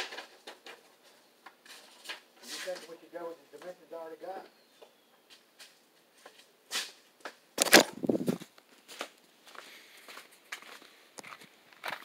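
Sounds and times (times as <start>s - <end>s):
footsteps on gravel: 7.6s - 12.0s.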